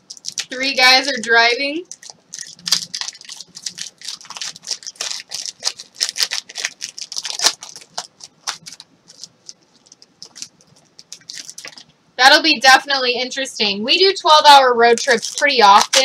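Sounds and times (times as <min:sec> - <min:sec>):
card packs rustling and clicking: 0:01.9 - 0:11.9, 0:15.0 - 0:16.0.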